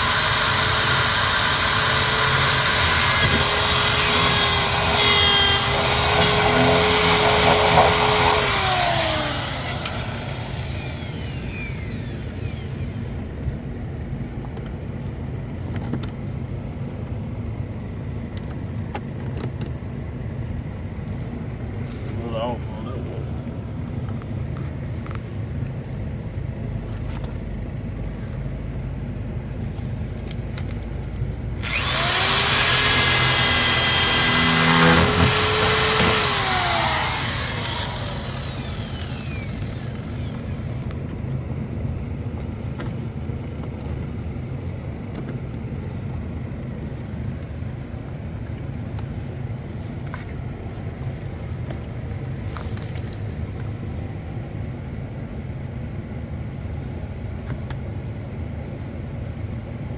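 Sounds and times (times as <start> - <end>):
power drill drilling: 0.0 - 12.9, 31.6 - 40.7.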